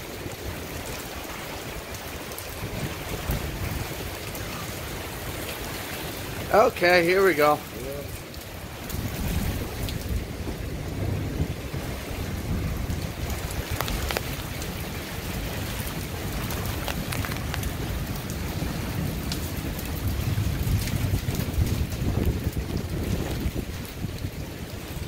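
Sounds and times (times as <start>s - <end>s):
raindrops ticking: 0.0s - 25.0s
wind gusting: 0.0s - 25.0s.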